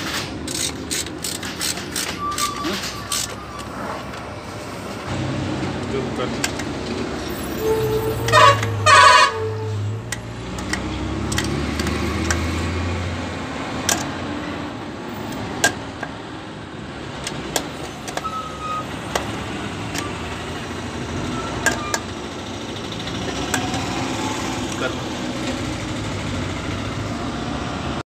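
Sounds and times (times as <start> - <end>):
socket wrench clicking: 0.0 - 3.4, 10.1 - 12.5, 13.8 - 14.2, 15.3 - 16.2, 17.2 - 18.3.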